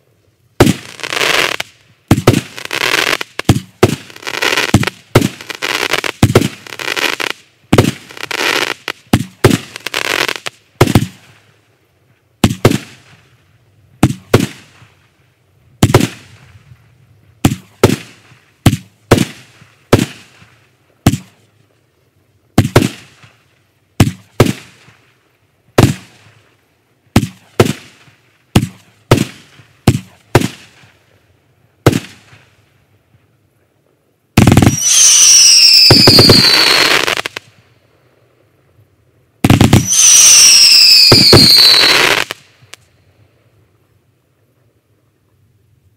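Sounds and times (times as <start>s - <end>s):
firework bangs: 0.6s - 11.3s, 12.4s - 13.2s, 14.0s - 14.9s, 15.8s - 16.5s, 17.4s - 21.4s, 22.6s - 23.4s, 24.0s - 25.0s, 25.8s - 26.4s, 27.1s - 30.9s, 31.8s - 32.5s, 34.4s - 37.5s, 39.4s - 42.8s
firework crackling: 0.6s - 11.6s, 14.0s - 15.2s, 15.8s - 16.6s, 17.4s - 21.6s, 22.6s - 31.2s, 31.8s - 32.7s, 34.4s - 37.8s, 39.4s - 43.0s
firework whistle falling in pitch: 34.6s - 37.3s, 39.8s - 42.4s.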